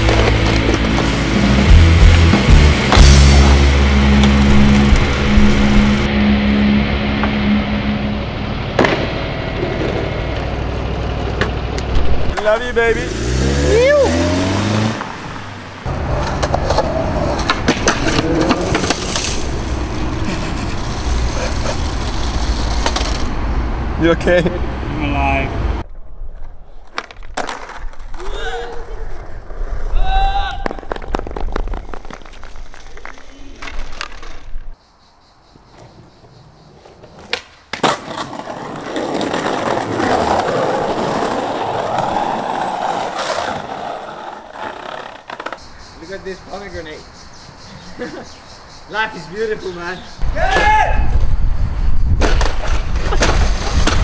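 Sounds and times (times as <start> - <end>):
skateboard wheels rolling on concrete: 0.0 - 7.5, 8.6 - 34.8, 35.5 - 54.0
car engine revving: 0.2 - 11.0, 12.7 - 21.3
skateboard clacks: 16.0 - 19.3, 26.9 - 28.9, 30.6 - 34.6, 35.7 - 45.7.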